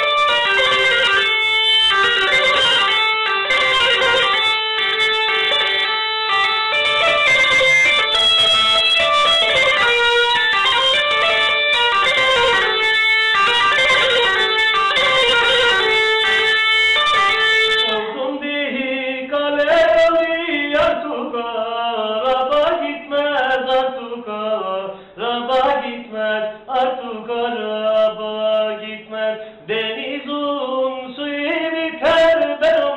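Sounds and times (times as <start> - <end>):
man singing unaccompanied: 0.0 - 12.8, 13.4 - 32.9
bagpipe playing folk tune: 0.0 - 18.0.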